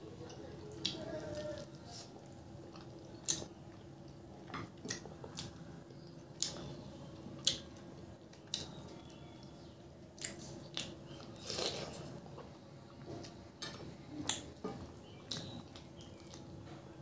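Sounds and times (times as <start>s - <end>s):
chewing and wet mouth smacks: 2.7s - 4.2s, 4.8s - 5.6s, 6.3s - 6.6s.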